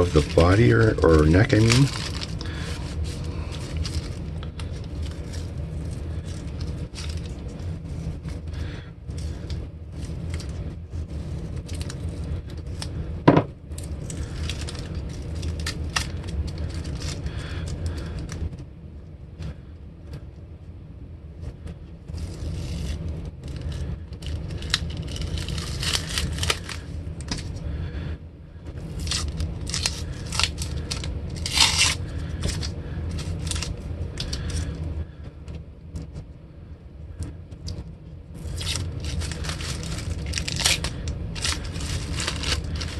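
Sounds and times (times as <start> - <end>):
masking tape peeling: 0.0 - 13.0, 13.7 - 18.4, 22.1 - 27.5, 28.8 - 34.8, 38.4 - 42.9
loose tape and paper crinkling: 0.0 - 18.5, 22.1 - 27.6, 28.8 - 34.9, 38.4 - 42.9
steady low hum: 0.0 - 42.9.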